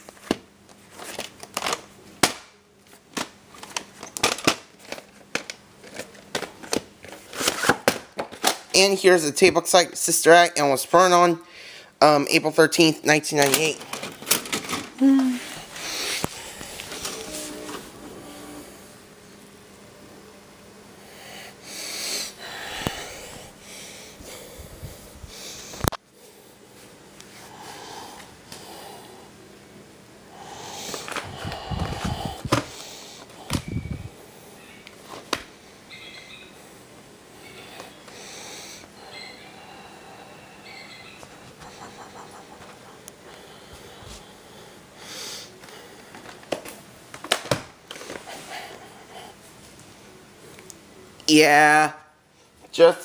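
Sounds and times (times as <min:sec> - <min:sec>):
breathy noise: 0:14.9 - 0:19.0, 0:20.9 - 0:26.5, 0:30.3 - 0:34.4, 0:37.4 - 0:46.4.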